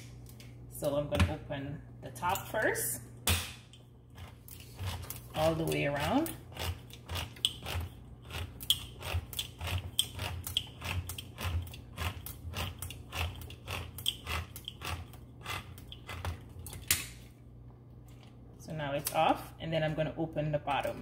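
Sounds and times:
can opener crunching clicks: 6.5 - 17.2.

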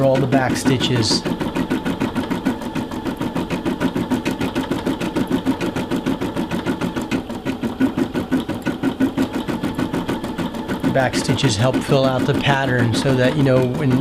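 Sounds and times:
embroidery machine stitching: 0.0 - 14.0.

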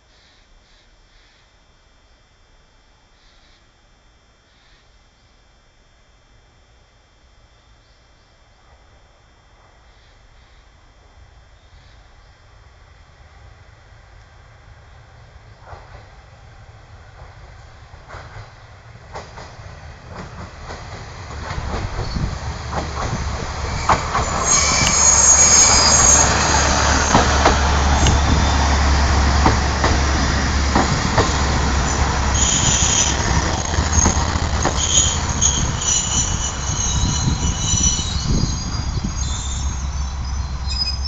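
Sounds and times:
diesel railcar engine hum: 8.7 - 41.0
wheels clacking over rail joints: 19.1 - 38.2
wheels squealing: 23.2 - 29.1, 30.7 - 41.0.

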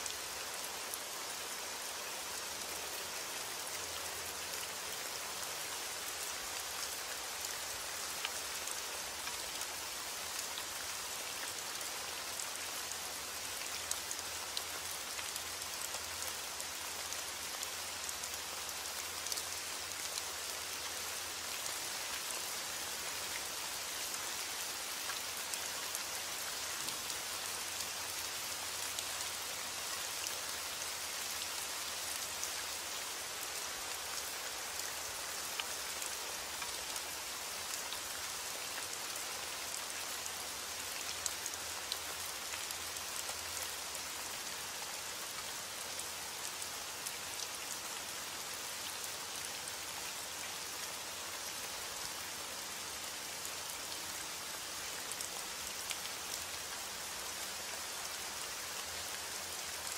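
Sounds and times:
steady rain falling: 0.0 - 59.9.

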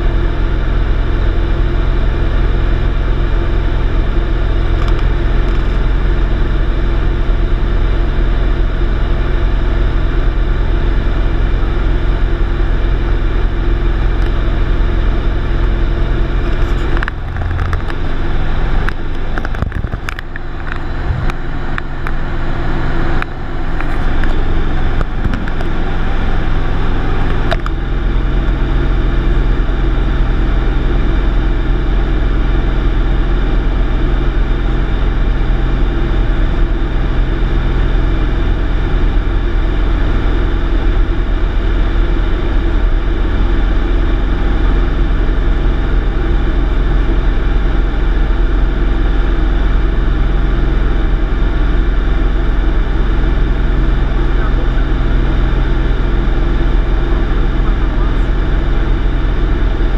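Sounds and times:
light aircraft engine droning: 0.0 - 59.9
crackles and clicks: 4.7 - 5.8, 16.3 - 22.2.

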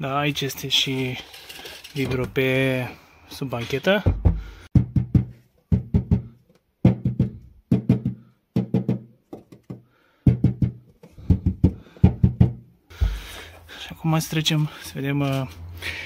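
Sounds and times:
knuckles knocking on sheet metal: 4.1 - 13.2.

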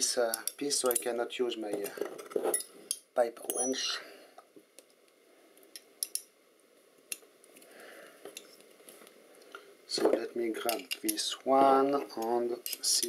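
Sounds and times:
faint steady hiss: 0.0 - 13.0
metal clicks and taps: 5.7 - 6.3.

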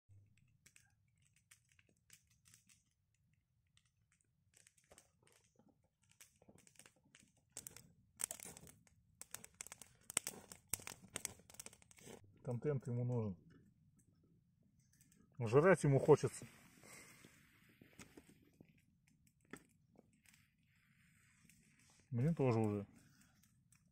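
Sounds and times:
campfire crackling and popping: 0.3 - 12.2.

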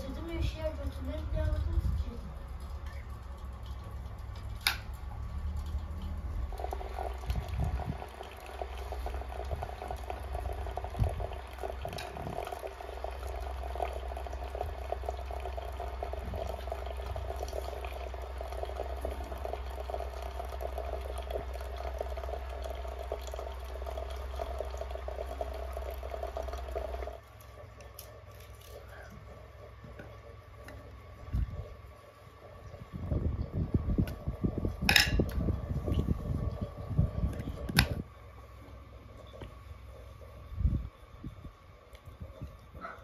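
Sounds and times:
hot water running into teapot: 0.0 - 43.0.

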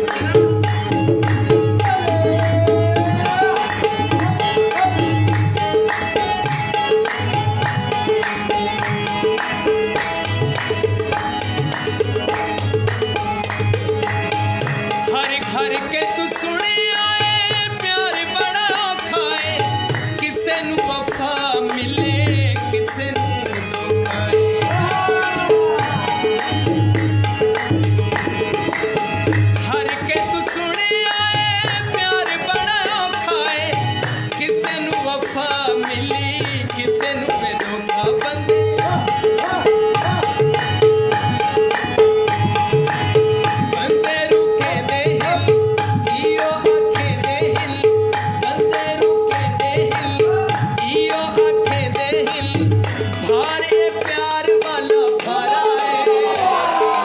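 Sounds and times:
tabla drumming: 0.0 - 57.0
person singing: 1.5 - 5.8, 15.0 - 26.6, 29.7 - 42.1, 43.6 - 57.0.

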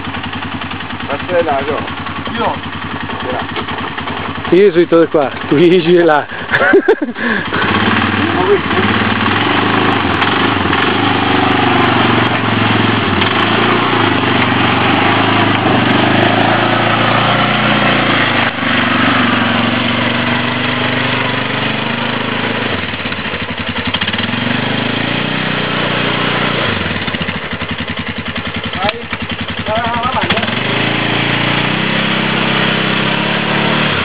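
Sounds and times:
quad engine revving: 0.0 - 34.0.

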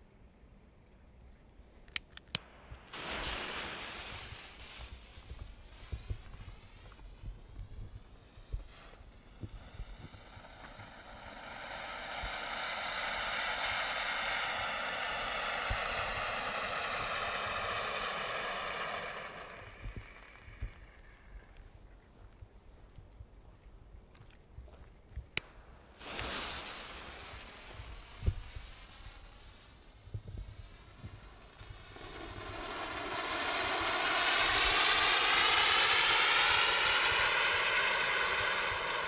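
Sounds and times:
sharp clicks: 1.9 - 2.9
firework fountain hissing sparks: 2.3 - 21.6, 25.4 - 39.0.

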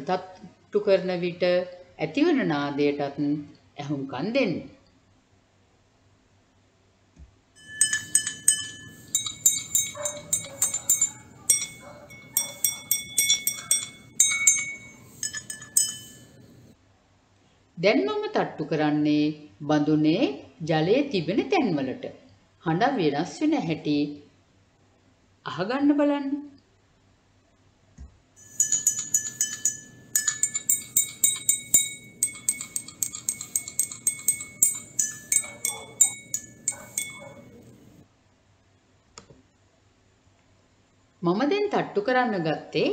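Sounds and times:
drinking glasses clinking: 7.6 - 16.8, 28.4 - 38.0.

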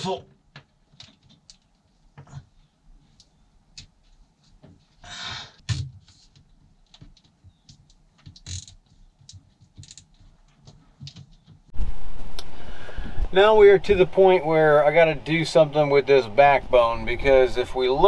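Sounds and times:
hands clicking and knocking: 6.3 - 11.7
rustle: 11.7 - 13.5.

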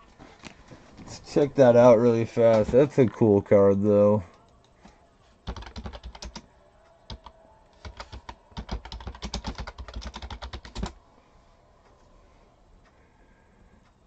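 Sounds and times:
computer keyboard typing: 5.4 - 6.5, 7.1 - 11.0.

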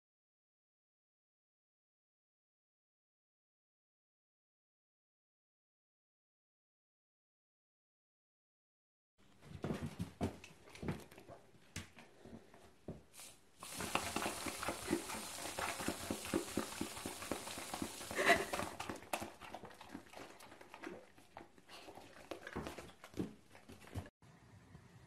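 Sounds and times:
aerosol can hissing: 13.2 - 18.7
puppy licking and smacking: 13.9 - 24.1.

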